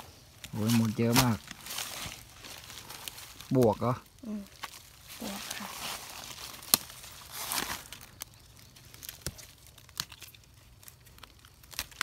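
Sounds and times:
dry leaves rustling: 0.0 - 12.0
faint clicks and crackles: 0.0 - 12.0.

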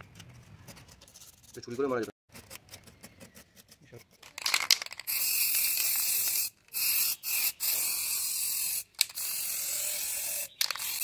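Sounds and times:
spray paint can hissing: 4.9 - 11.0.

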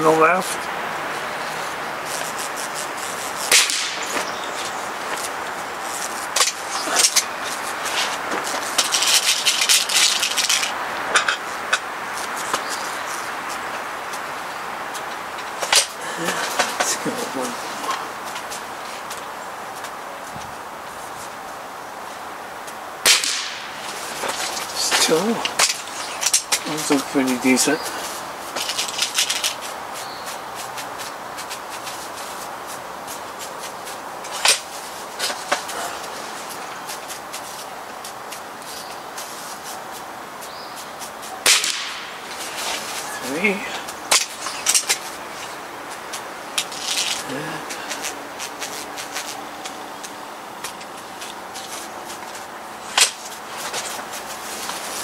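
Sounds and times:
air rifle snap: 3.5 - 4.3, 23.0 - 23.7, 41.4 - 42.1
sharp loud click: 3.5 - 4.3, 23.0 - 23.6, 41.4 - 42.1
clicks scrapes and rattles: 5.9 - 13.2, 28.5 - 36.1, 43.8 - 55.0.

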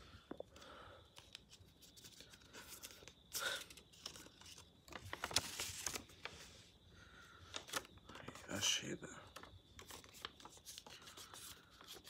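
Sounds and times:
paper rustling and crackling: 1.2 - 6.5, 7.5 - 8.7, 9.3 - 12.0.

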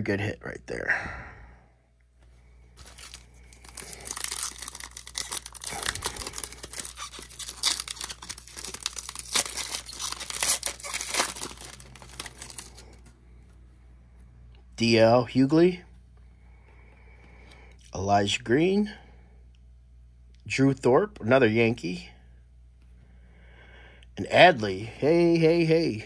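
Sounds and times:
foil wrapper tearing and crinkling: 2.8 - 13.0.

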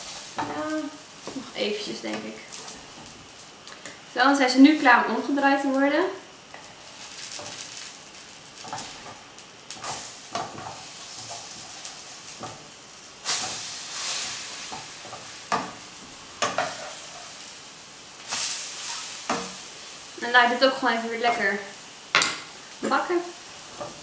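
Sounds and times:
pancakes sizzling in a frying pan: 0.0 - 24.0
spatula knocking and scraping pan: 9.8 - 11.8, 12.4 - 12.6, 14.6 - 15.8, 16.4 - 17.3.

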